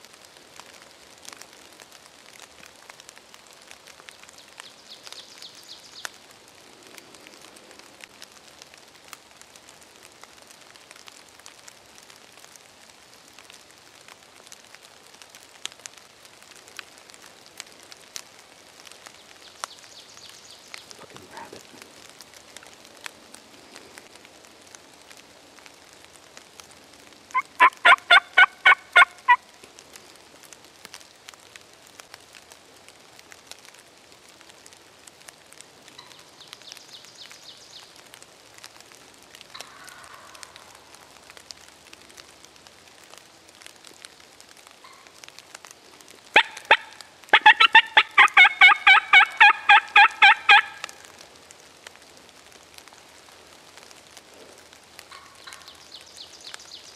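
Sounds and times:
wild turkey yelping: 20.9s - 21.7s, 27.3s - 29.4s, 39.5s - 40.9s, 46.4s - 51.0s.

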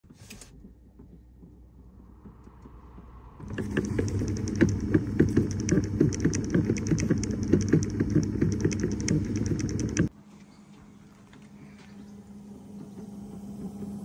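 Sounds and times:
steady low rush: 0.8s - 10.1s
air flap rattling: 3.4s - 10.1s.

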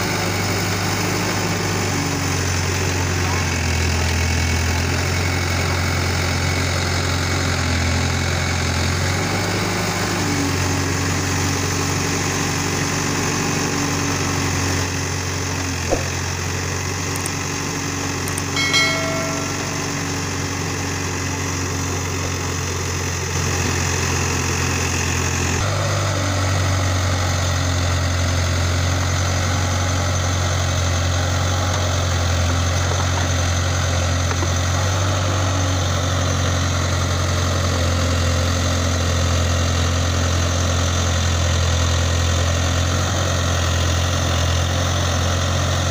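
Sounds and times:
diesel engine running at low revs: 0.0s - 45.9s
short ringing chime: 18.4s - 21.1s.

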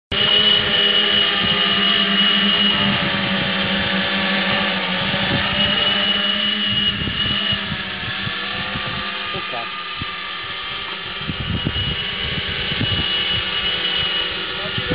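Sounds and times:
drone propellers whining: 0.1s - 14.9s.

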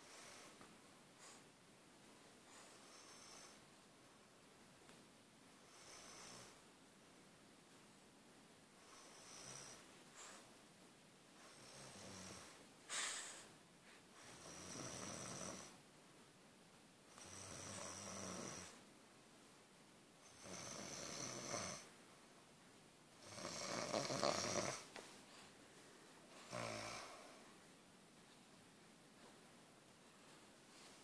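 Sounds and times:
person snoring: 14.3s - 15.8s, 17.2s - 18.8s, 20.3s - 21.9s, 23.2s - 24.9s, 26.4s - 27.4s.

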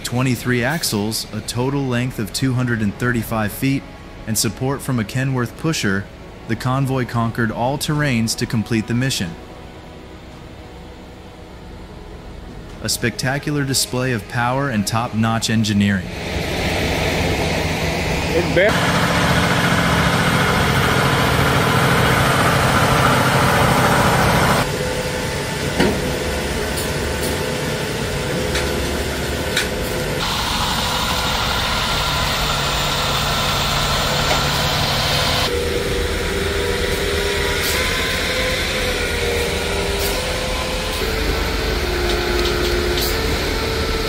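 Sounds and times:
truck diesel engines running: 16.1s - 44.0s.

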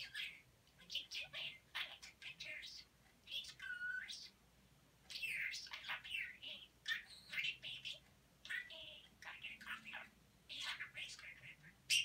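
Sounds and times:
budgerigar chattering: 5.1s - 12.0s.

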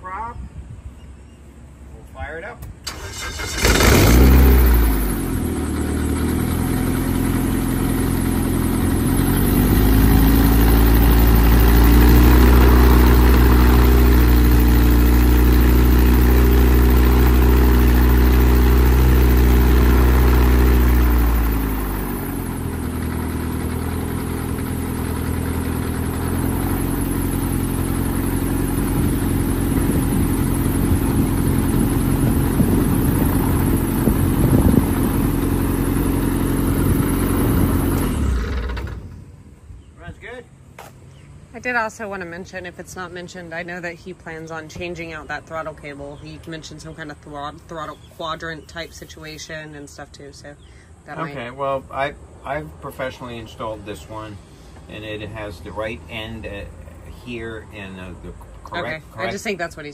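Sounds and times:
aircraft engine and propeller: 2.9s - 39.2s.

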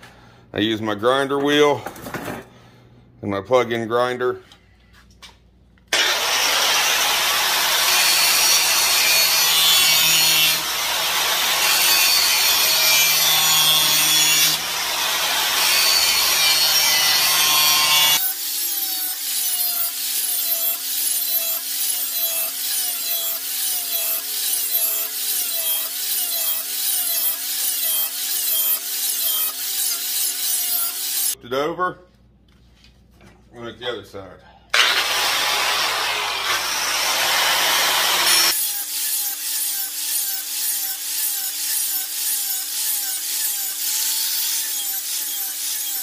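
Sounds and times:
electric grinder grinding steel blade: 5.9s - 31.4s, 34.8s - 46.0s.

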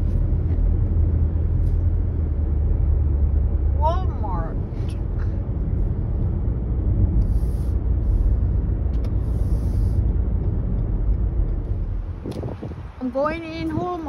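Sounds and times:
car rumble from inside: 0.0s - 14.0s
hiss: 7.2s - 8.2s, 9.2s - 10.0s.

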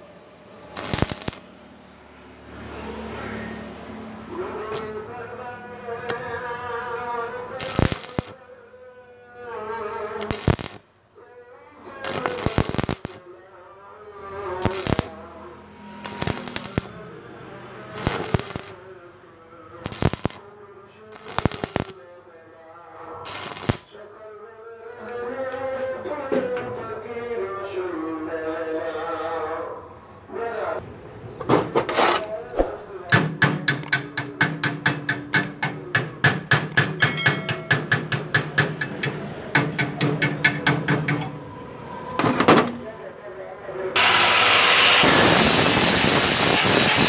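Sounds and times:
welding arc crackling: 0.8s - 1.5s, 7.6s - 8.4s, 10.2s - 10.8s, 12.0s - 13.3s, 14.6s - 15.2s, 15.9s - 17.0s, 17.9s - 18.8s, 19.8s - 20.4s, 21.2s - 22.0s, 23.2s - 23.9s, 44.0s - 47.0s
hammer striking steel: 33.1s - 41.4s
wavering hum: 44.0s - 47.0s.

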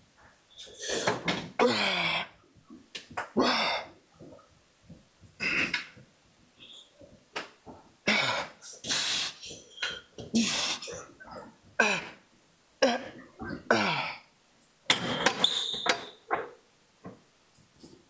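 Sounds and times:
man grunting and groaning: 1.6s - 2.3s.

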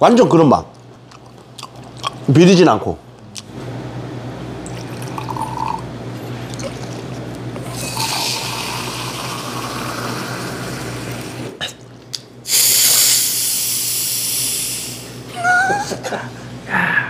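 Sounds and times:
beer pouring into a glass: 4.6s - 5.9s, 7.6s - 11.2s
hissing fizzing beer pour: 4.6s - 5.9s, 7.6s - 11.4s.

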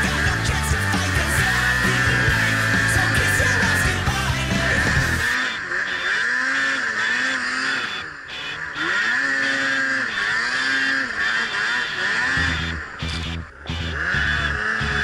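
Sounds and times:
rock music: 0.0s - 5.5s, 12.3s - 15.0s
snowmobile engine revving: 0.0s - 15.0s
track spinning in snow: 0.0s - 15.0s.

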